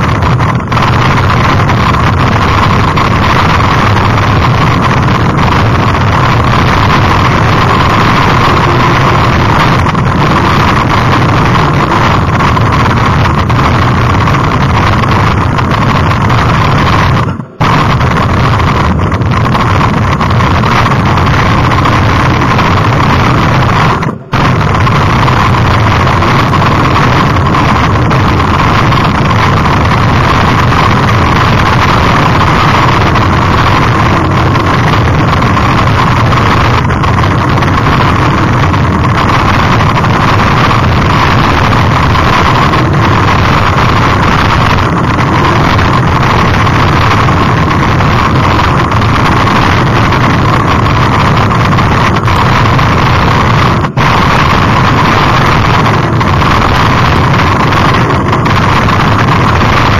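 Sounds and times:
tyres rumbling on dirt: 0:00.0 - 0:59.9
wind buffeting microphone: 0:00.0 - 0:59.9.

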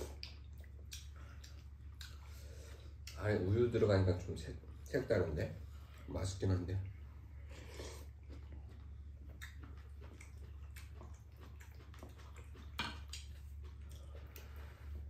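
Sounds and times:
chewing: 0:00.0 - 0:03.2, 0:07.5 - 0:15.0
low steady hum: 0:00.0 - 0:15.0.

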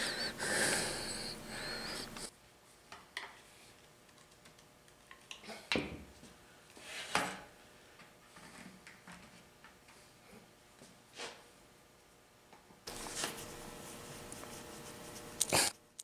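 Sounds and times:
breath on microphone: 0:00.0 - 0:02.3
faint wavering whistle: 0:00.0 - 0:02.3.

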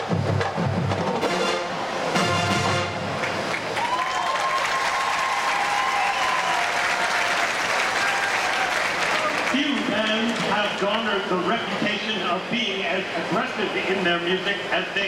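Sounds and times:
marching band chord: 0:00.0 - 0:03.7
crowd applauding and cheering: 0:02.2 - 0:11.2.

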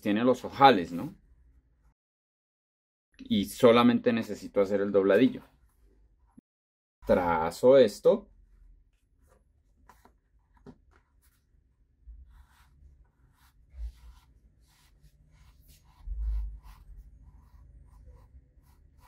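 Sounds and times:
chalk scratching on fabric: 0:12.2 - 0:19.0.

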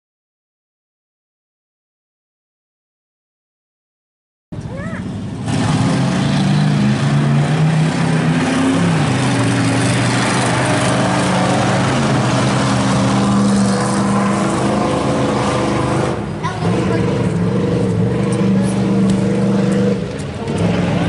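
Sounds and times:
race car engines revving: 0:04.6 - 0:21.0.

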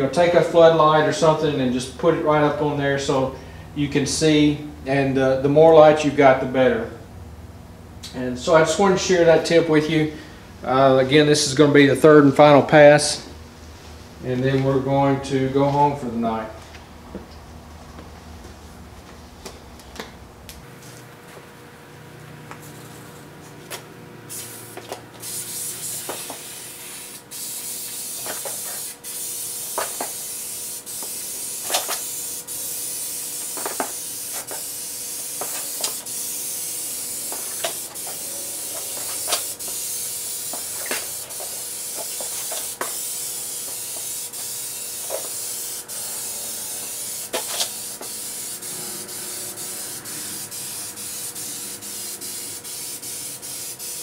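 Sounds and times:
spray paint can hissing: 0:24.3 - 0:54.0.

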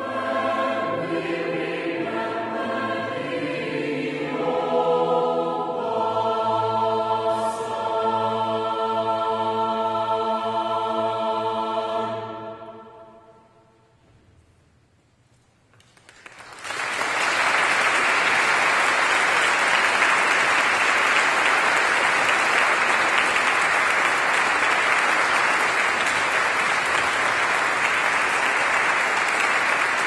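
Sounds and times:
audience applause: 0:15.9 - 0:30.0.

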